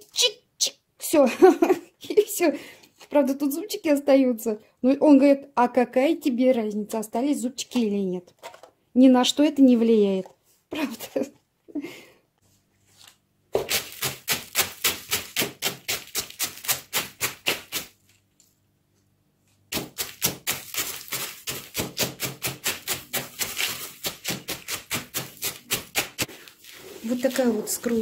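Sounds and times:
eggshells crunching in plastic bucket: 19.8s - 28.0s.

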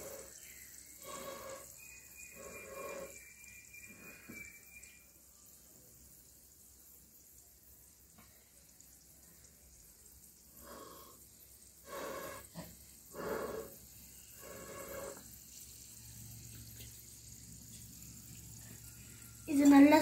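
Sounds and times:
puffs of breath through a pipe: 0.0s - 4.6s, 10.5s - 15.4s
faint steady hiss: 0.0s - 20.0s.

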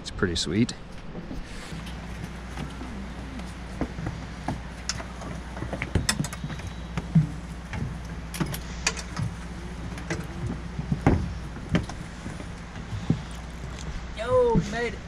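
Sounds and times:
footsteps on metal ladder: 1.0s - 14.9s
clicks knocks and thumps: 3.7s - 14.7s.

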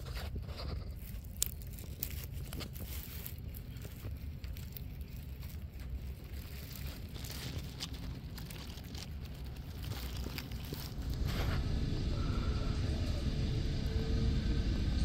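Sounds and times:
small crackles and clicks: 0.0s - 11.2s
low steady outdoor rumble: 0.0s - 15.0s.

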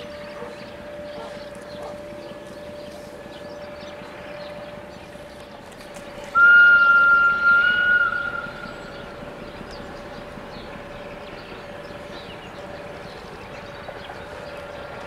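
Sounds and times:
locomotive warning whistle: 6.3s - 9.7s.

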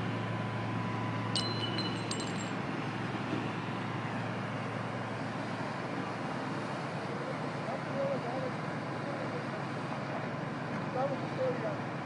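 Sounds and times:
vehicle engine humming: 0.0s - 12.0s
high metallic ring: 1.4s - 2.6s.

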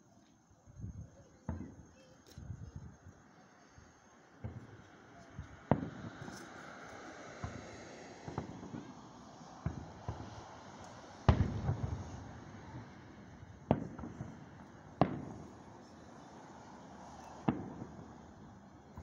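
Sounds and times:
fireworks crackling: 0.0s - 19.0s
fireworks booming: 0.9s - 2.6s, 4.4s - 19.0s.

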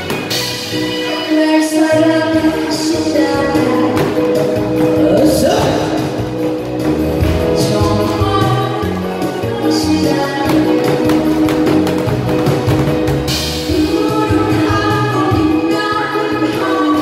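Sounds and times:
trot music over loudspeakers: 0.0s - 17.0s.

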